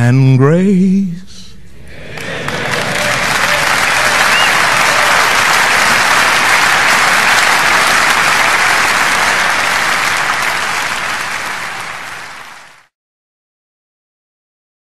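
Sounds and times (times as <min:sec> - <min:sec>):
large crowd applauding: 0:01.9 - 0:12.9.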